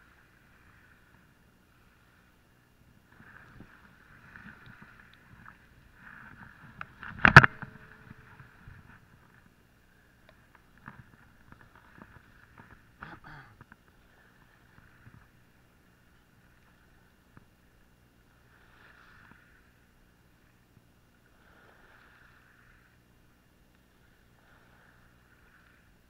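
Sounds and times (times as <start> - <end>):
faint rubbing and clicks: 3.1 - 9.6, 10.2 - 15.4
short rattle: 6.7 - 9.4.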